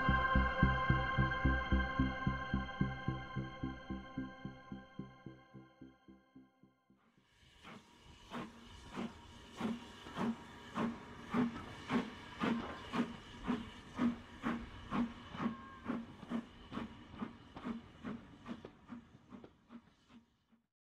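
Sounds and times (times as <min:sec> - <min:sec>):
steam locomotive chuffing: 0:07.5 - 0:20.3.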